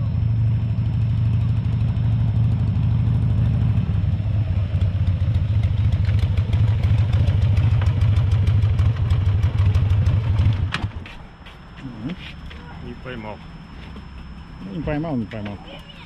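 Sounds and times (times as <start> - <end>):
motorcycle engine idling: 0.0 - 11.0.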